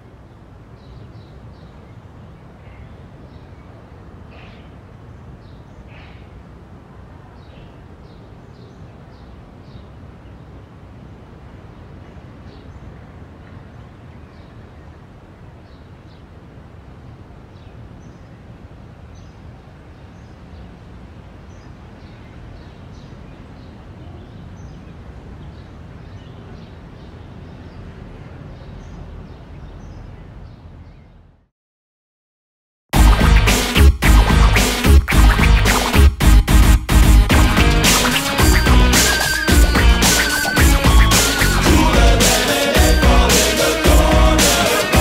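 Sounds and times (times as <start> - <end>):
low city rumble: 0.0 - 31.5
birds chirping: 33.0 - 45.0.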